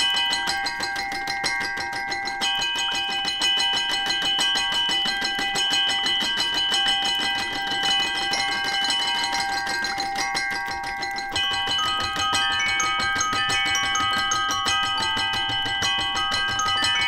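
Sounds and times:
toy piano notes: 0.0 - 17.0.

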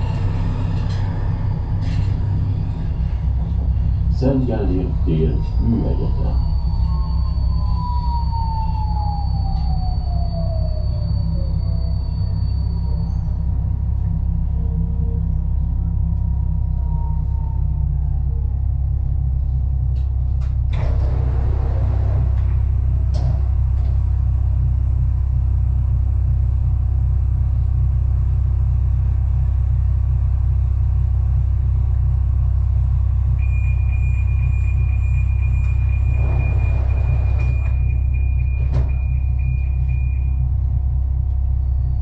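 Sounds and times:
metro train rumble in tunnel: 0.0 - 42.0
steady high tone: 4.2 - 13.9.

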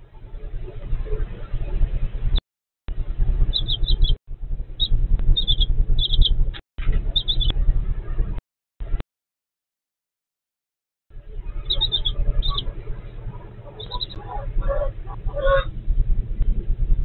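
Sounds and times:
steady low hum: 0.0 - 9.0, 11.1 - 17.0
baby chicks peeping: 3.4 - 4.2, 4.8 - 8.4, 11.3 - 15.7.

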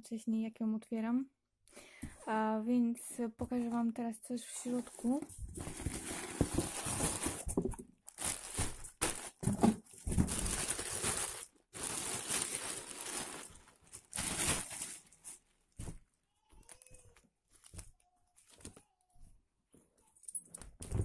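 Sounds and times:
cardboard and plastic rustling: 4.5 - 19.3.

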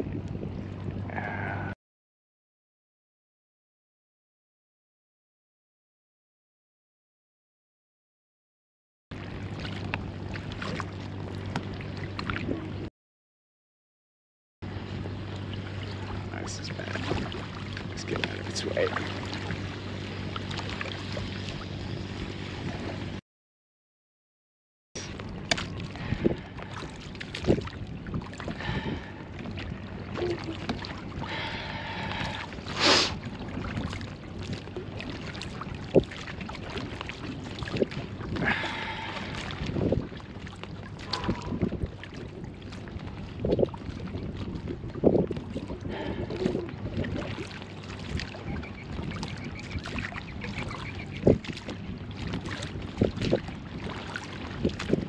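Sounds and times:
wind: 0.0 - 1.8, 9.1 - 12.9, 14.6 - 23.2, 25.0 - 55.0
boat motor humming: 9.2 - 12.9, 14.6 - 23.2, 25.0 - 55.0
water splashing against hull: 9.2 - 12.9, 14.7 - 23.2, 25.0 - 55.0.

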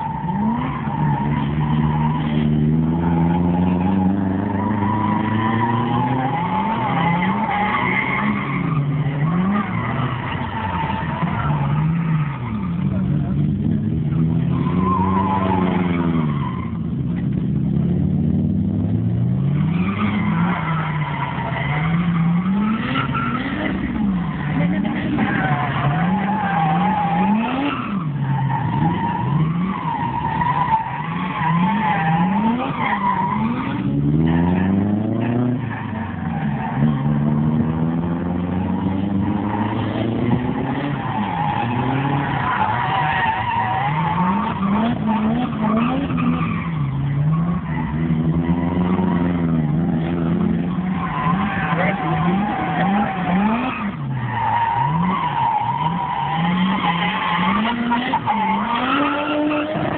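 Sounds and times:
car engine revving: 0.0 - 59.9
tyres squealing: 40.5 - 59.9.

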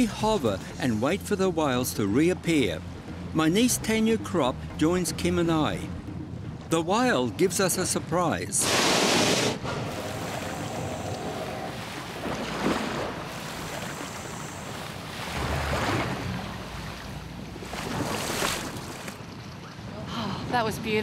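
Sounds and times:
sea washing around boat: 8.6 - 19.5.

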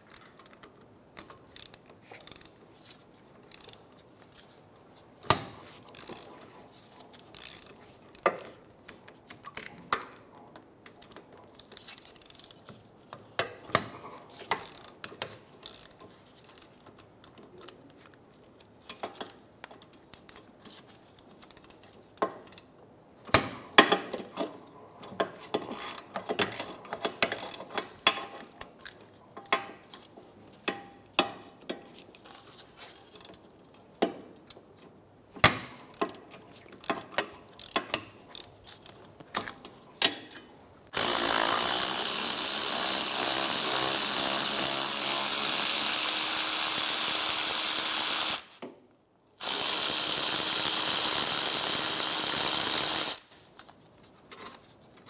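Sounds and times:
hand ratchet clicking: 1.5 - 2.6, 3.5 - 3.8, 7.3 - 8.3, 15.6 - 16.0, 25.2 - 28.9, 36.8 - 39.0, 40.9 - 48.6, 49.4 - 53.3.

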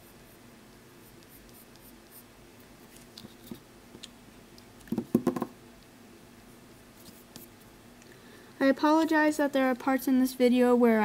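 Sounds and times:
loud knocks: 4.9 - 5.5.

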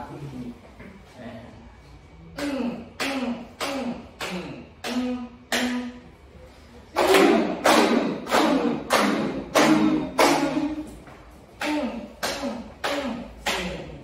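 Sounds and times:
group clapping rhythmically: 2.4 - 6.0, 7.0 - 14.0
voices calling short syllables: 9.0 - 14.0.

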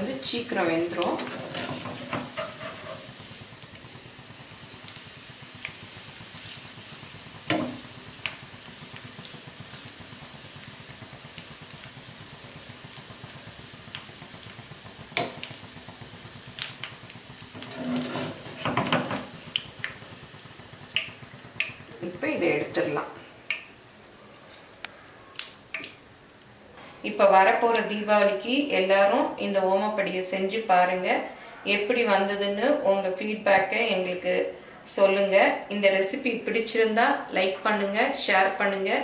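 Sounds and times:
hot oil sizzling and bubbling: 0.0 - 26.6
skimmer clicking against pan: 20.9 - 21.9.

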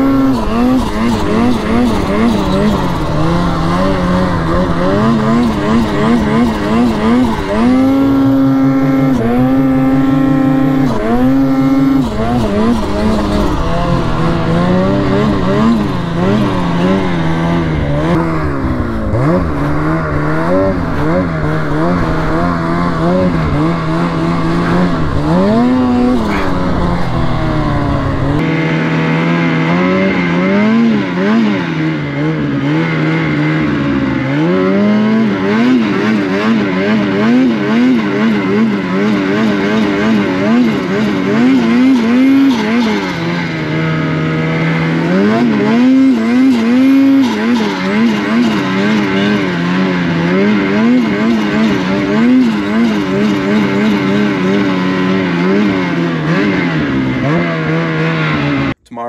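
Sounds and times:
snowmobile engine revving: 0.0 - 59.0
low rumble: 11.0 - 28.6.

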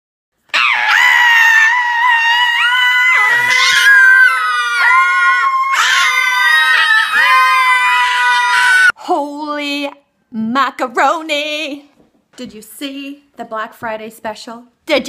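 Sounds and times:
woman and children screaming: 0.6 - 9.0.

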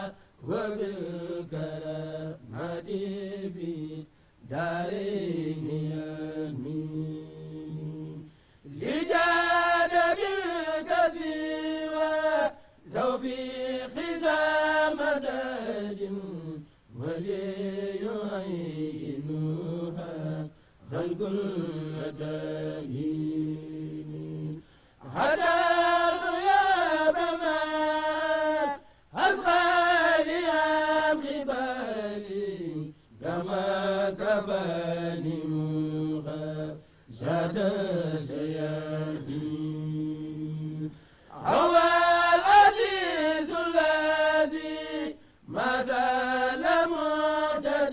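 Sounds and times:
men chanting devotional poem: 0.0 - 47.9.

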